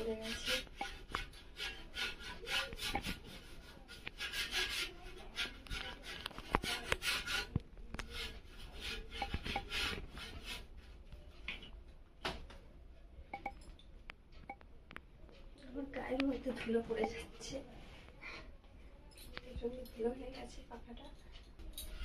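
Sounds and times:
brush scrubbing metal blade: 0.0s - 7.5s, 8.1s - 10.7s.

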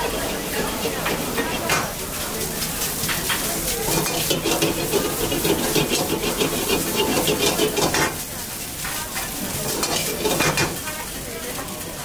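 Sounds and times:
noodles sizzling in a pan: 0.0s - 12.0s
metal spatula scraping and clinking: 3.0s - 8.2s, 9.6s - 10.7s.

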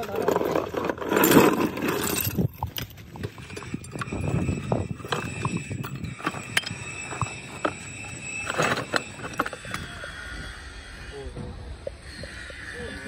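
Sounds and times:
high machine whine: 0.8s - 13.0s.

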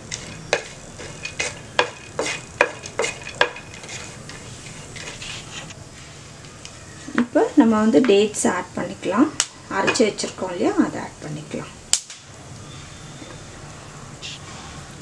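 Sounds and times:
seeds sizzling in a frying pan: 0.0s - 5.7s
wooden spatula scraping a pan: 0.0s - 5.7s.

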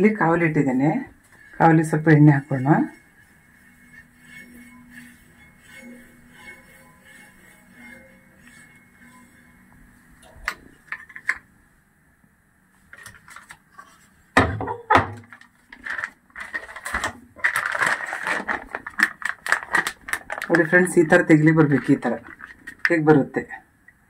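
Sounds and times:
paper crinkling and rustling: 12.9s - 14.1s, 15.2s - 22.9s.

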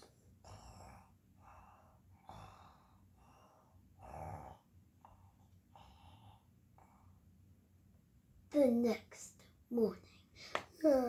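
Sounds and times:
child breathing softly: 0.0s - 3.9s, 5.1s - 7.3s, 10.0s - 10.7s.

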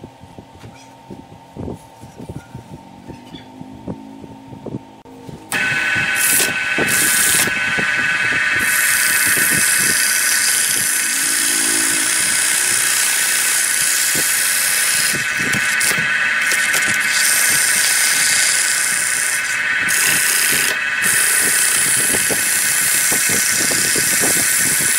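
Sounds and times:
wood lathe whine: 5.5s - 24.9s
sandpaper hissing on spinning wood: 5.6s - 24.9s.

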